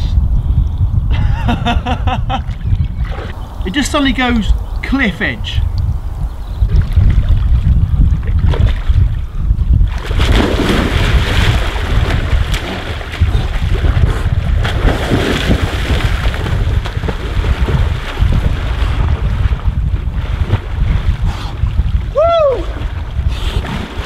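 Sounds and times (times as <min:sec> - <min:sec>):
wind buffeting microphone: 0:00.0 - 0:24.0
man splashing in water: 0:09.9 - 0:21.9.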